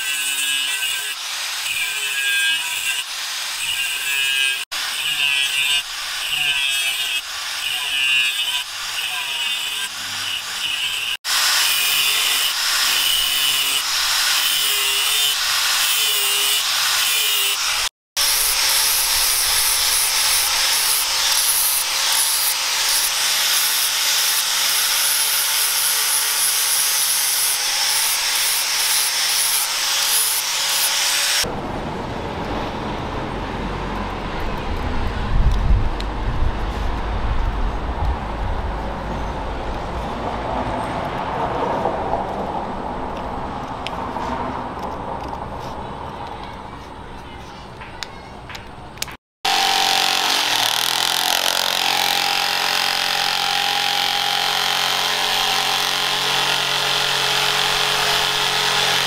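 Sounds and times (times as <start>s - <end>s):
angle grinder grinding steel: 0.0s - 31.5s, 49.4s - 59.0s.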